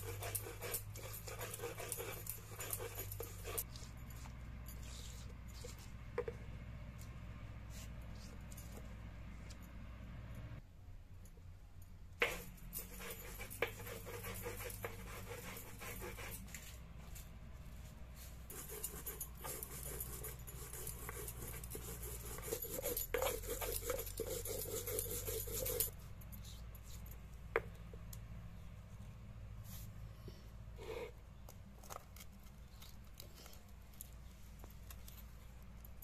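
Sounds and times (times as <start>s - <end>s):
stone grinding on stone: 0.0s - 5.9s, 12.2s - 16.4s, 18.5s - 25.9s.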